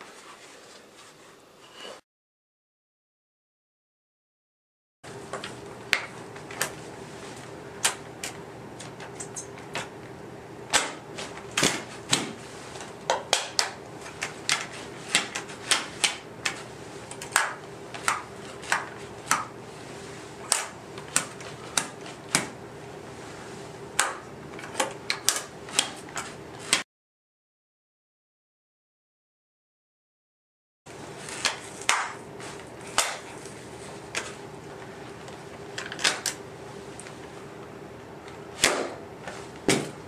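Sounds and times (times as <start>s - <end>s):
faint steady hum: 5.1s - 26.8s.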